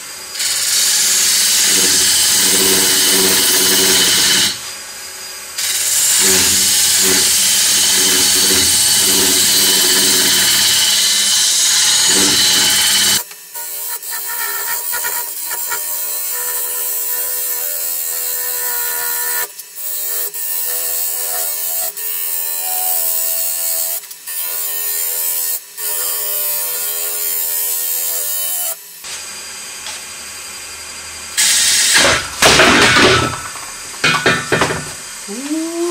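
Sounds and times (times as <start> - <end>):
lathe humming: 0.4 - 4.7, 5.6 - 13.2
lathe tool scraping wood: 0.4 - 4.8, 5.6 - 21.8.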